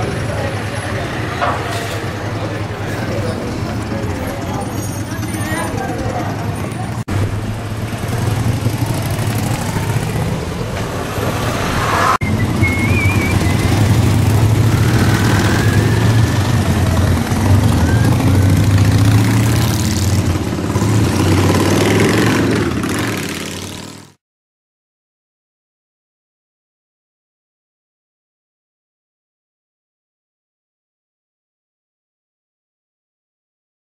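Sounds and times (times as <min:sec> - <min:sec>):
motorcycles riding past: 0:00.0 - 0:24.2.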